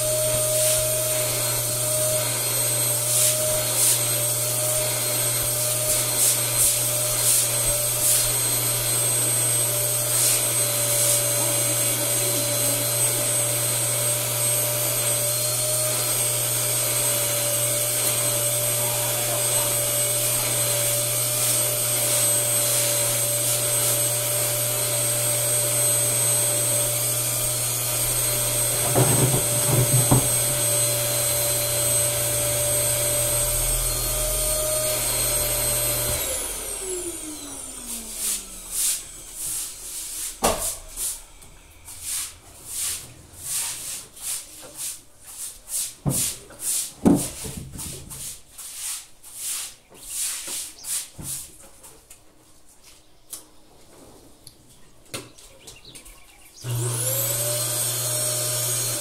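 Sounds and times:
electric motor whining: 0.0s - 43.2s, 56.6s - 59.0s
knocks: 28.8s - 30.4s
short scraping strokes: 37.8s - 51.6s.

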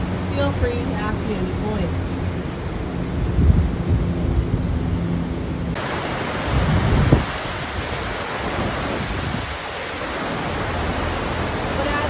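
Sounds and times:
rushing whitewater rapids: 5.8s - 12.0s.

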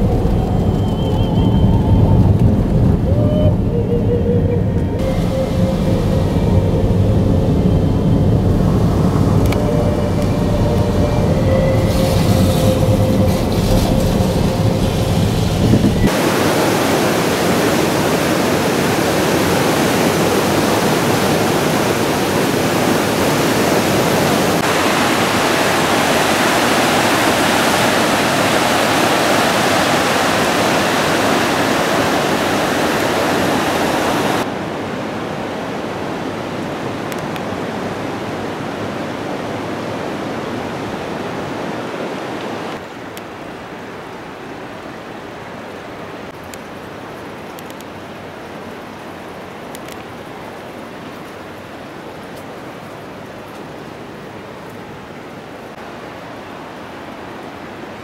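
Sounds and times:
low vehicle rumble: 0.0s - 16.2s
water rushing: 0.0s - 58.0s.

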